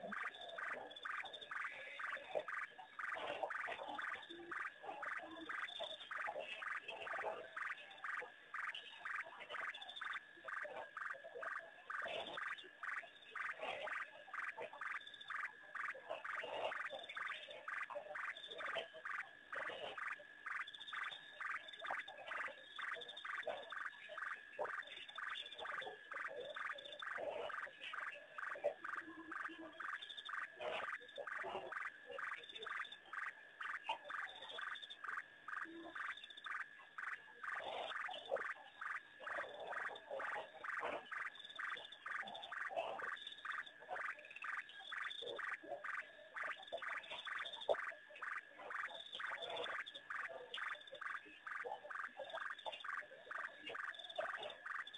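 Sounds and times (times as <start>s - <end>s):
chorus of frogs calling: 0.0s - 54.9s.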